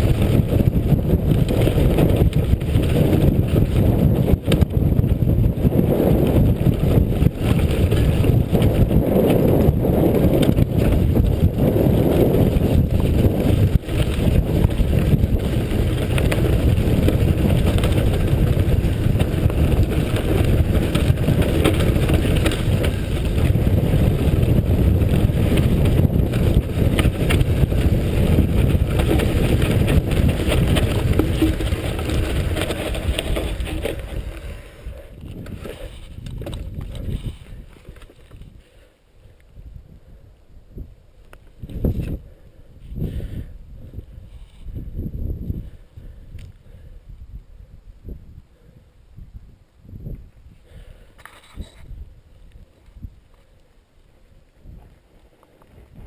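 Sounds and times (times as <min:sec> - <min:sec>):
bike knocks and rattles: 0:00.0 - 0:34.6, 0:35.2 - 0:38.4
bike tyres on gravel: 0:00.0 - 0:38.9, 0:40.7 - 0:46.9, 0:49.4 - 0:56.0
wind rush on microphone: 0:00.0 - 0:56.0.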